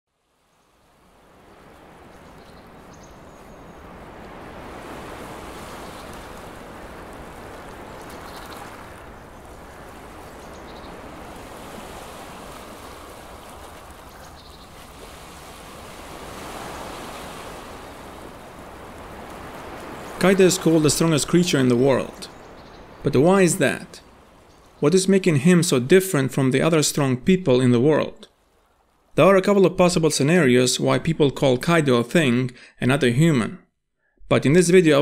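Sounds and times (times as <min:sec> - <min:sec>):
ocean waves surf: 0:00.1 - 0:27.0, 0:28.3 - 0:29.2.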